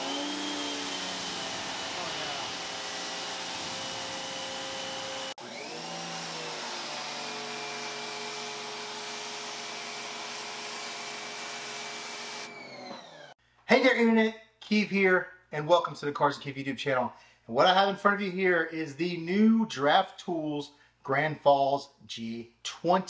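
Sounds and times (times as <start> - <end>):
pressure washer motor whine: 0.0 - 13.4
pressure washer spray hiss: 1.6 - 4.0.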